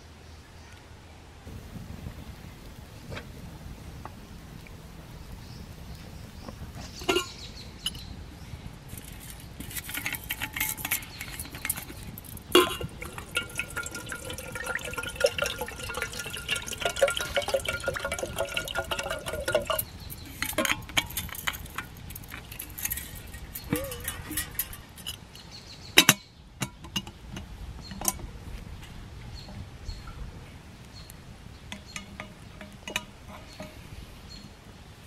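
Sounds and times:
water pouring into metal kettle: 0:07.0 - 0:08.0, 0:08.9 - 0:25.2, 0:31.7 - 0:33.8.

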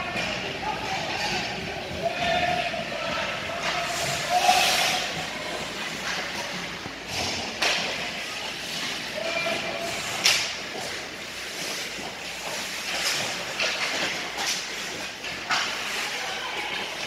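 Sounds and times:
arena noise: 0:00.0 - 0:17.0
hockey sticks knocking puck: 0:00.0 - 0:17.0
skates scraping ice: 0:00.0 - 0:17.0.

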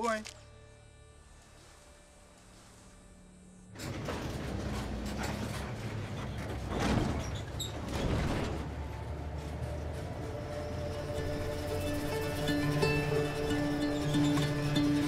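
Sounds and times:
vehicle body creaking and rattling: 0:03.7 - 0:12.2.

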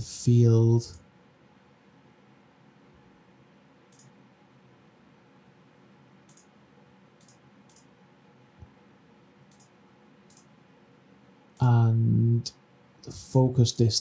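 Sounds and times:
computer mouse clicks: 0:03.9 - 0:04.2, 0:06.2 - 0:06.6, 0:07.2 - 0:08.0, 0:09.4 - 0:10.6.

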